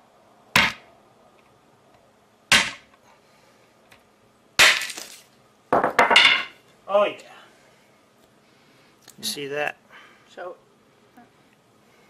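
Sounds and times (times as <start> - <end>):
sledgehammer striking a nut: 0.6 - 0.9, 2.5 - 2.9, 4.6 - 5.2
nut shell cracking: 4.7 - 5.3.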